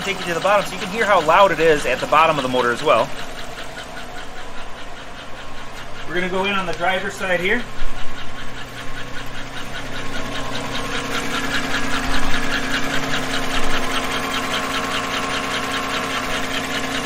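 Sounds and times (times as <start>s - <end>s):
car engine idling: 0.0s - 17.0s
quick even engine tick: 0.0s - 17.0s.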